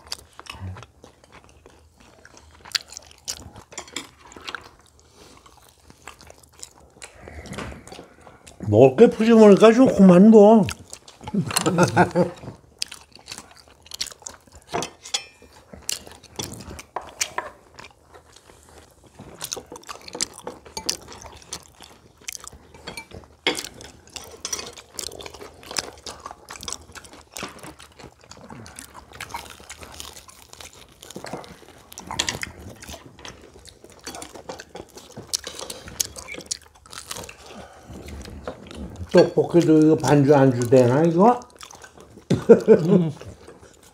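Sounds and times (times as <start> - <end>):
people chewing crunchy fried food: 0.0 - 43.9
chopsticks clinking on plates: 3.7 - 4.2, 14.7 - 15.6, 22.7 - 24.9.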